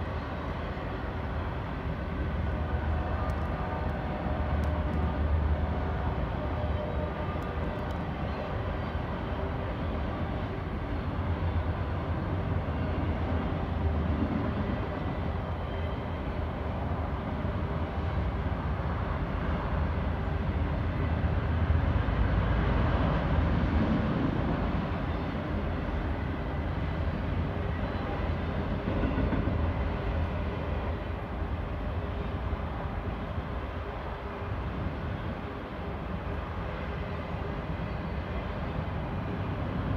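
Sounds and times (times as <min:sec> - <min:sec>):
freight train wheels rumbling on rail: 0:00.0 - 0:39.9.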